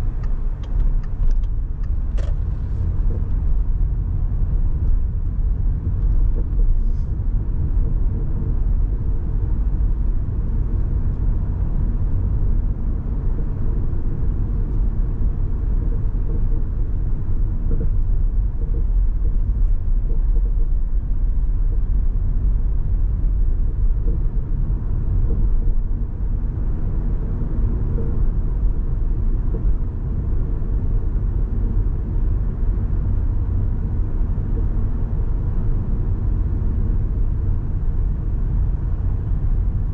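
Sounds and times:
car road and engine rumble: 0:00.0 - 0:39.9.

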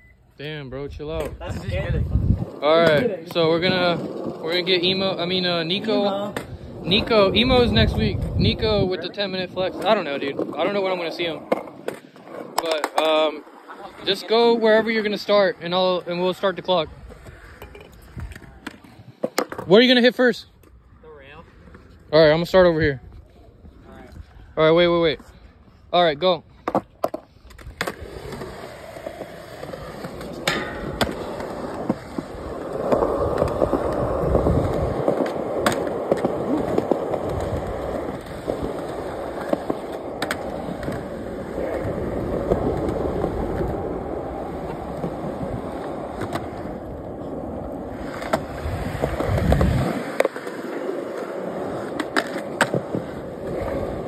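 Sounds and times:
skateboard wheels rolling on concrete: 0:00.0 - 0:54.0
skateboard clacks popping and landing: 0:11.4 - 0:13.2, 0:17.2 - 0:19.7, 0:26.6 - 0:54.0.

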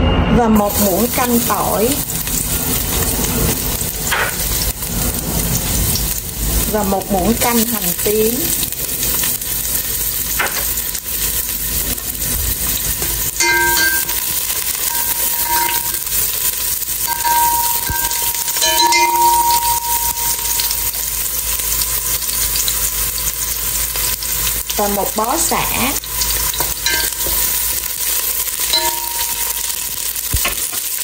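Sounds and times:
garlic sizzling in hot oil: 0:00.6 - 0:31.0
chopsticks stirring in pot: 0:12.6 - 0:20.9, 0:26.5 - 0:30.0
short ringing tones: 0:13.4 - 0:16.2, 0:17.0 - 0:21.0, 0:28.7 - 0:29.9.

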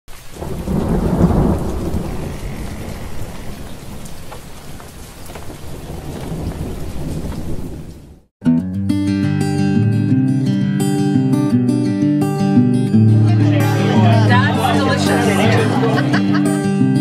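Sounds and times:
raindrop ticks: 0:00.1 - 0:08.1
rain hiss: 0:00.1 - 0:08.2
rolling thunder: 0:00.3 - 0:08.2.

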